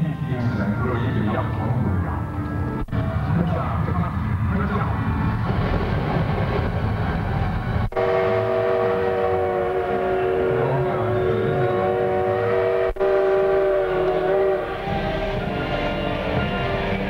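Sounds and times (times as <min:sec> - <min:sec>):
low train rumble: 0:00.0 - 0:17.0
multi-note train whistle: 0:07.9 - 0:17.0.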